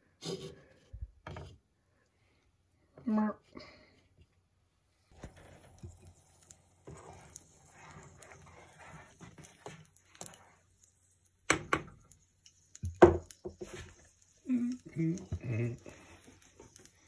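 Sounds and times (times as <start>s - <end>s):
spatula stirring sauce in saucepan: 5.0s - 17.0s.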